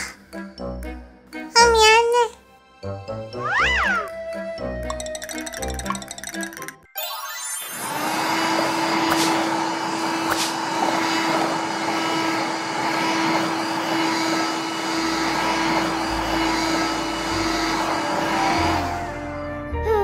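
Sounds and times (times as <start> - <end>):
toy vacuum cleaner whirring: 7.6 - 19.2.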